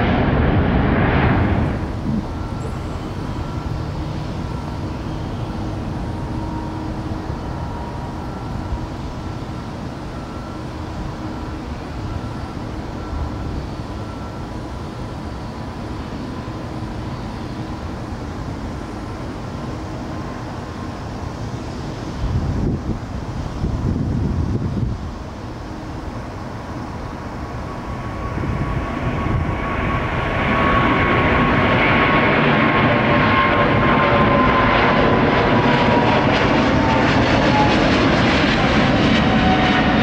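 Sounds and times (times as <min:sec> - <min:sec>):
distant jet engines rumbling: 0:00.0 - 0:40.0.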